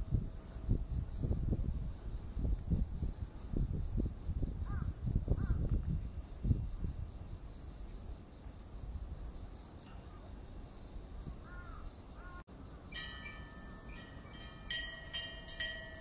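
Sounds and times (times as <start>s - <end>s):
crows cawing: 11.4s - 12.4s.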